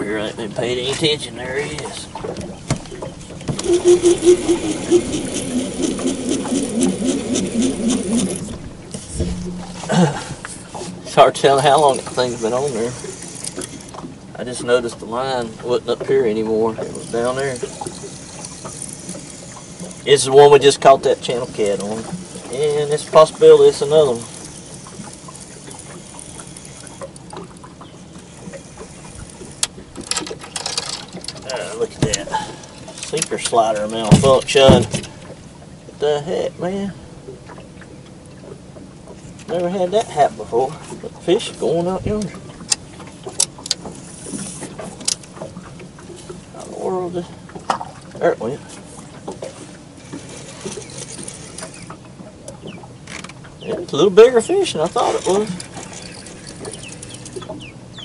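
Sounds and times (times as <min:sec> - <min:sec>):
fishing reel whirring: 0:03.6 - 0:08.6, 0:11.6 - 0:14.0, 0:16.8 - 0:20.3, 0:21.3 - 0:27.6, 0:28.2 - 0:31.2, 0:50.0 - 0:52.0, 0:55.0 - 0:57.5.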